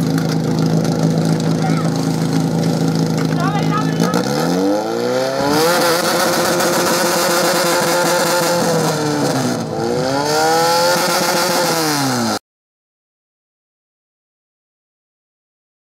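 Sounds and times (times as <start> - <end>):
pump engine revving hard: 0.0 - 12.4.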